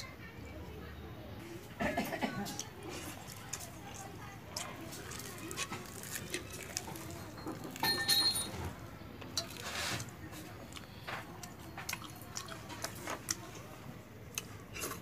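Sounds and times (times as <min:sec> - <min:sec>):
wet squishes of eating by hand: 0:02.1 - 0:07.8, 0:09.2 - 0:15.0
ringing clink of steel bowl: 0:07.8 - 0:08.6.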